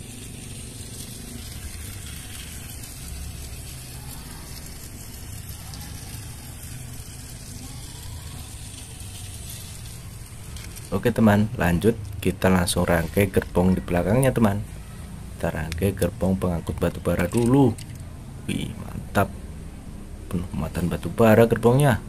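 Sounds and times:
toy train motor and wheels: 0:00.0 - 0:14.5, 0:15.6 - 0:18.1.

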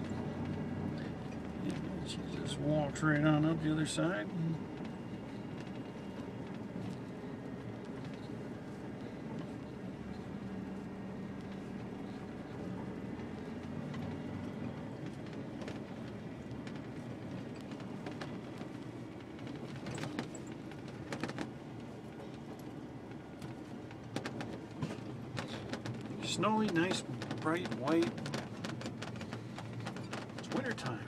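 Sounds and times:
truck engine drone: 0:00.0 - 0:31.0
sharp clicks and knocks: 0:11.4 - 0:31.0.

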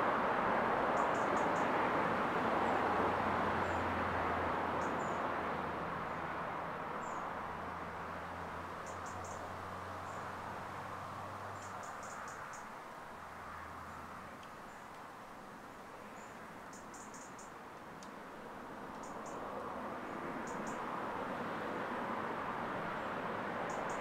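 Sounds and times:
low hum of distant traffic: 0:00.0 - 0:24.0
passing car road noise: 0:00.0 - 0:24.0
small birds chirping: 0:08.8 - 0:10.3, 0:11.6 - 0:12.7, 0:16.1 - 0:17.6.

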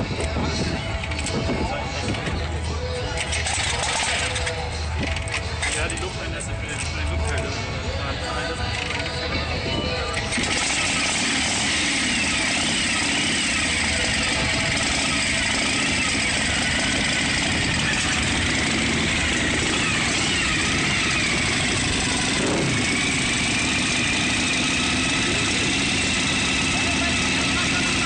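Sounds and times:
motorcycle engine running: 0:00.0 - 0:28.0.

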